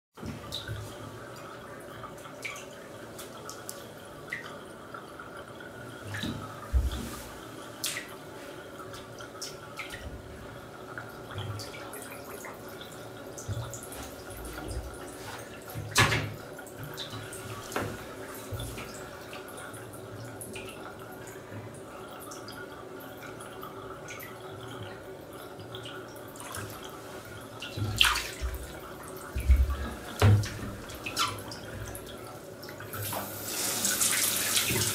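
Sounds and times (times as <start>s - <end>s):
bathwater lapping: 0.2s - 34.9s
water dripping: 0.2s - 34.9s
sharp water splashes: 27.6s - 28.8s
foot stepping in water: 27.8s - 28.7s.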